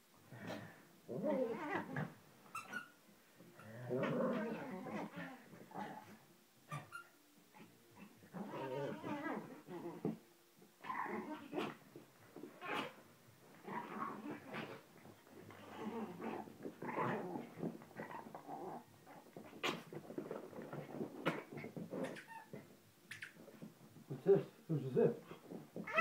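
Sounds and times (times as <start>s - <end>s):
small dogs growling: 0.3s - 2.2s, 3.6s - 6.2s, 7.6s - 10.2s, 10.8s - 22.6s.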